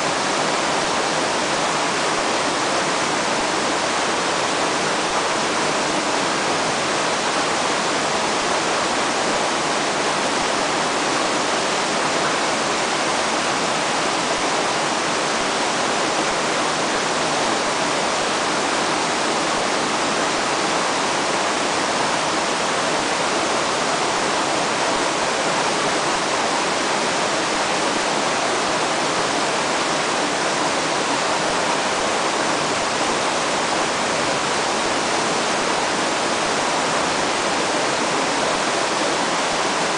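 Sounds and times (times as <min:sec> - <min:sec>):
river water rushing: 0:00.0 - 0:39.9.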